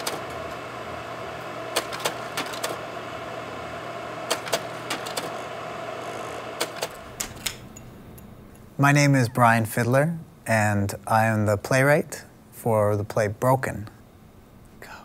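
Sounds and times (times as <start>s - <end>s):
small machine humming: 0.0s - 7.9s.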